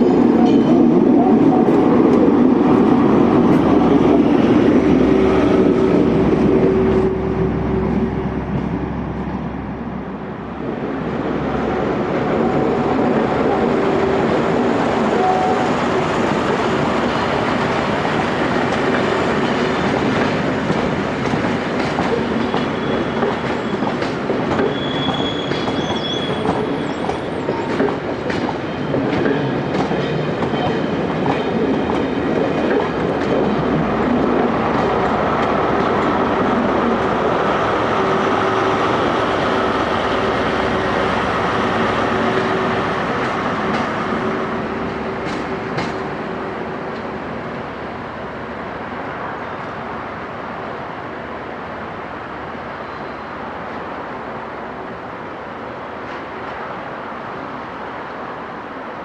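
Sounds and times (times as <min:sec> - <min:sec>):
train rumbling past: 0:00.0 - 0:59.0
high wheel squeal: 0:22.5 - 0:23.9, 0:24.6 - 0:27.8.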